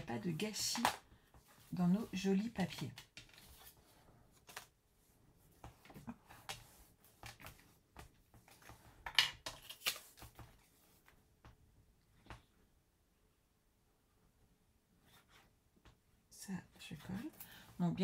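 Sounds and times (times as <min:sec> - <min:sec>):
paper rustling and tapping: 0:00.0 - 0:03.8, 0:04.4 - 0:04.7, 0:05.5 - 0:11.6.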